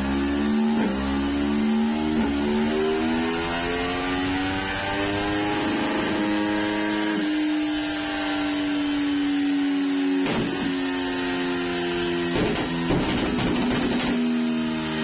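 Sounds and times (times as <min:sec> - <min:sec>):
motorcycle engine revving: 0:00.0 - 0:15.0
exhaust crackle: 0:12.3 - 0:14.3.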